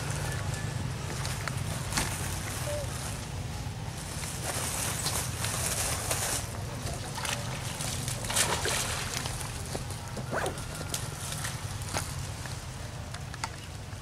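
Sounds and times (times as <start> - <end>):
water splashing and sloshing: 4.1 - 13.9.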